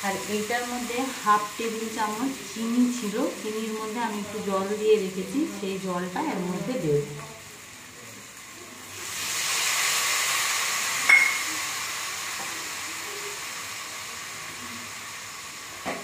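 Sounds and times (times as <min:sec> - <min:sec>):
liquid sizzling in hot oil: 0:00.0 - 0:16.0
metallic clink: 0:11.1 - 0:11.5.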